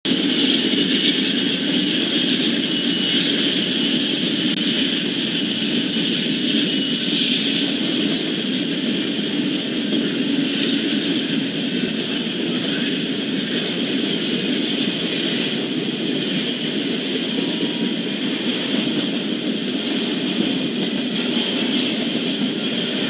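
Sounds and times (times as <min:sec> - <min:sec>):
freight train passing: 0:00.1 - 0:23.0
high wheel squeals: 0:16.1 - 0:20.1.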